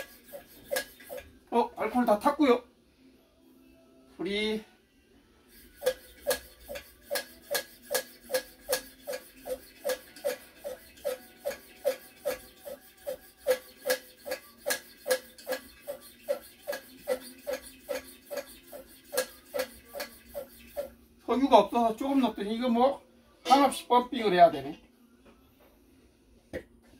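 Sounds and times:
hand air pump clicking and squeaking: 0.0s - 1.3s, 5.8s - 20.9s.

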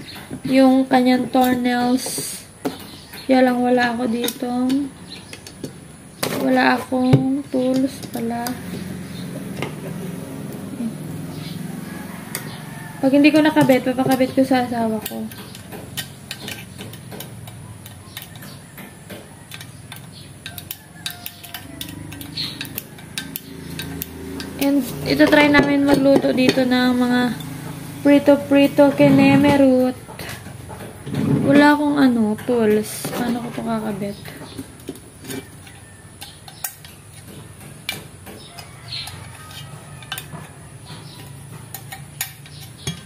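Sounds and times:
metal scissors clicking and scraping: 19.5s - 25.2s.

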